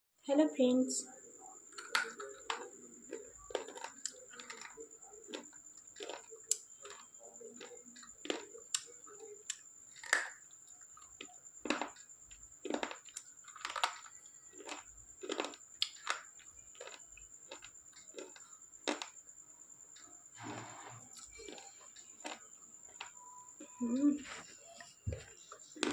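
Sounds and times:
pencil being chewed crunching: 1.7s - 10.4s, 11.0s - 19.2s.

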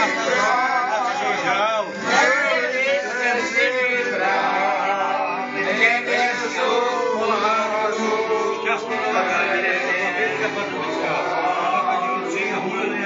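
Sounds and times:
piano accordion playing tune: 0.0s - 13.0s
voices singing along: 0.0s - 13.0s.

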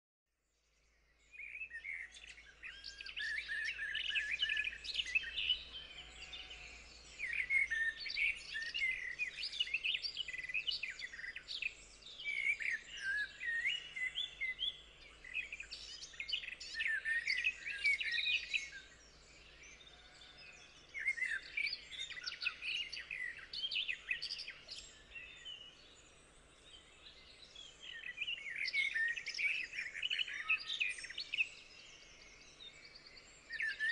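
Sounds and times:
small birds chirping and warbling: 0.4s - 33.9s.

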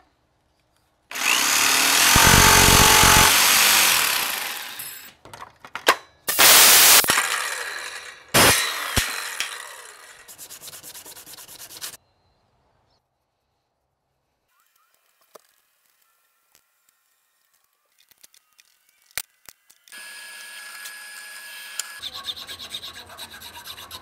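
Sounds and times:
loud cutting noise: 1.1s - 5.1s, 6.3s - 10.4s, 19.9s - 22.1s
power tool motor whine: 1.1s - 5.1s, 6.4s - 10.2s, 19.9s - 22.0s.

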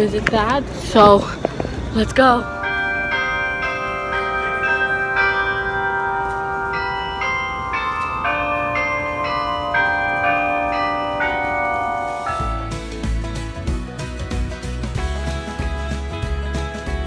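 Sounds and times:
clock bells playing a tune: 2.2s - 13.2s.

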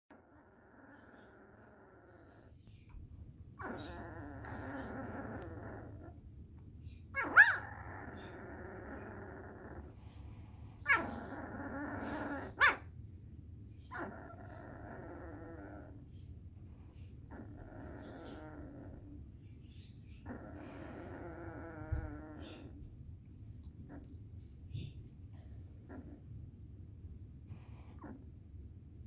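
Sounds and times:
puppy grumbling and whining: 0.1s - 13.0s, 13.8s - 23.0s, 23.6s - 26.5s, 27.5s - 29.0s
puppy yelping: 3.6s - 6.2s, 7.1s - 9.9s, 10.8s - 12.9s, 13.9s - 16.0s.

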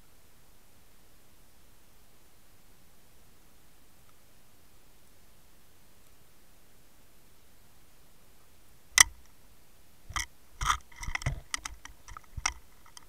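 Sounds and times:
underwater clicks and knocks: 9.0s - 9.2s, 10.1s - 13.0s.

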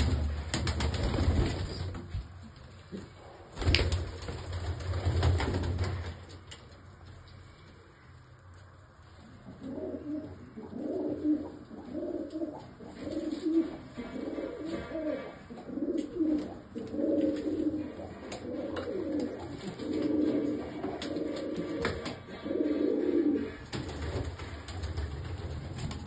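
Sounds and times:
pigeons cooing: 9.4s - 25.5s.

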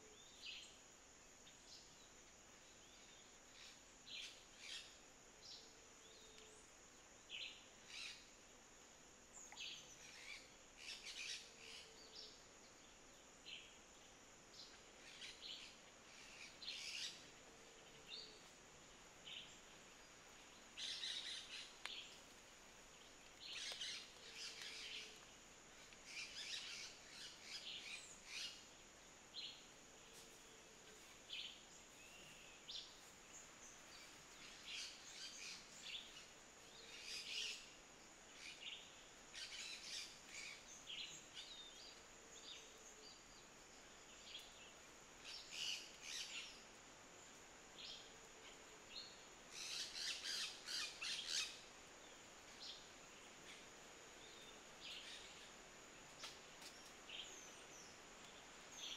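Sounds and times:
birds chirping and trilling: 31.4s - 36.3s, 49.0s - 51.7s.

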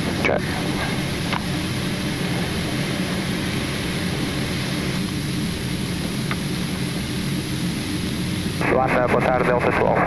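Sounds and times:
aircraft cockpit rumble: 0.0s - 10.0s.

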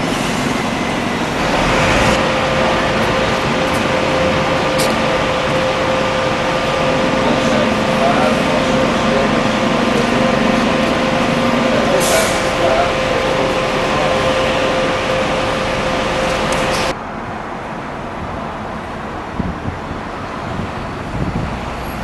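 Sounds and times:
diesel bus engine: 0.0s - 22.0s
air brake hiss: 12.0s - 12.6s.

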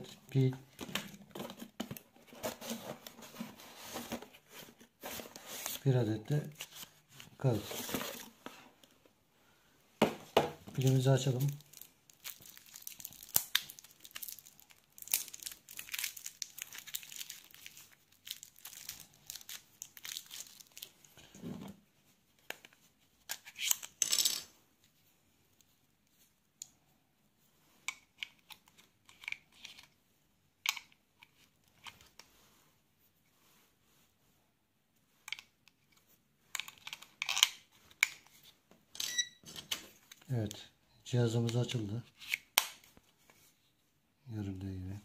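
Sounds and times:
plastic wrap tearing and crinkling: 10.9s - 21.1s.

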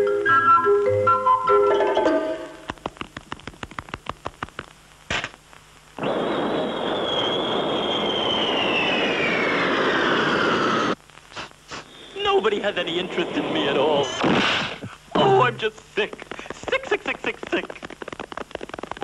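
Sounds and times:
cartoon falling whistle: 6.0s - 10.6s.

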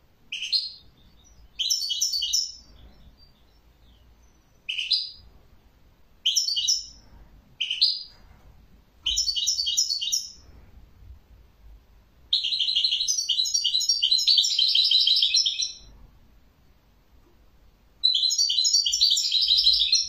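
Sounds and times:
goldfinch singing: 0.3s - 5.2s, 6.2s - 7.0s, 9.0s - 10.4s, 12.3s - 15.9s, 18.0s - 20.0s.

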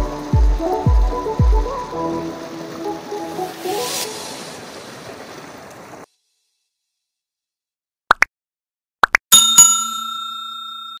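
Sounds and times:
music: 0.0s - 4.0s
faint rush of water: 0.0s - 6.2s
bell-like notification ding: 9.3s - 11.0s.

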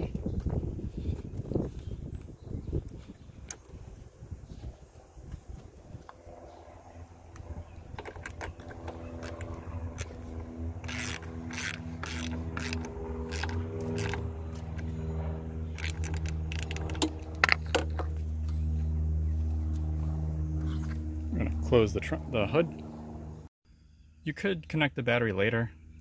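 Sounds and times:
steady low hum: 0.0s - 26.0s
wrench clicking and scraping: 10.8s - 14.9s, 15.7s - 17.7s.

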